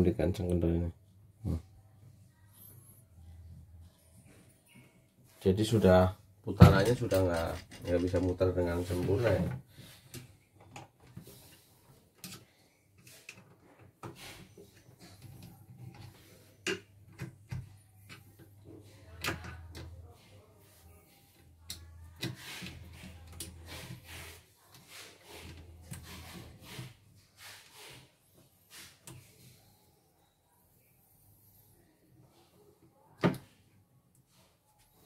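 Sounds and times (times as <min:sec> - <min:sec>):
scraping and rubbing: 0:21.6 - 0:29.4.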